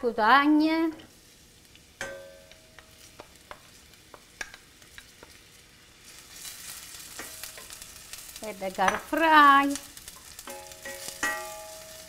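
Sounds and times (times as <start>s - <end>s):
faint sizzle: 0.0s - 12.0s
ringing knock on pan: 2.0s - 2.6s
spatula tapping and scraping pan: 2.0s - 5.5s, 7.0s - 7.9s, 8.7s - 9.3s, 10.0s - 12.0s.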